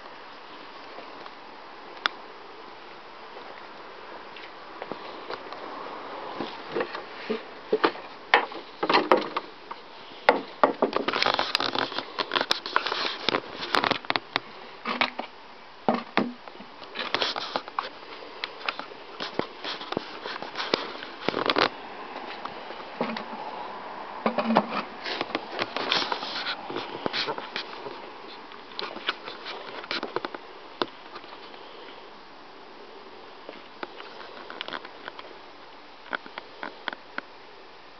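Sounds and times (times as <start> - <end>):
microphone handling noise: 24.3 - 31.6.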